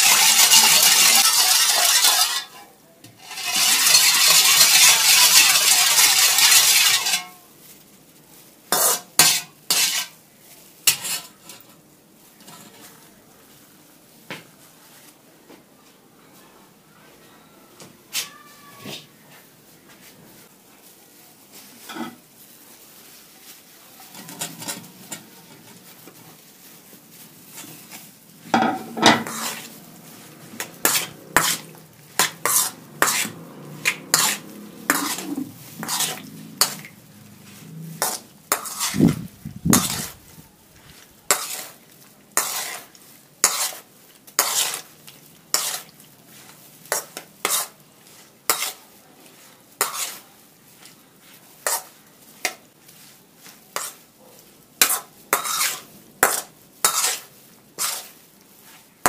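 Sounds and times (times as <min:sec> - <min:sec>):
metal spoon clinking in steel bowl: 0:00.0 - 0:02.6, 0:03.2 - 0:07.4.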